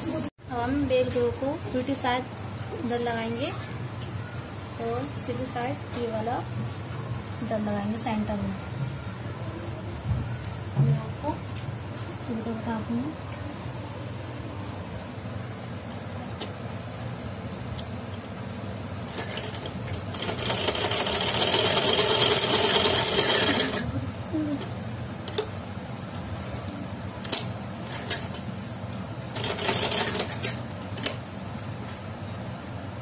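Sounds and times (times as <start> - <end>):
sewing machine stitching: 19.1 - 23.9, 29.3 - 30.6.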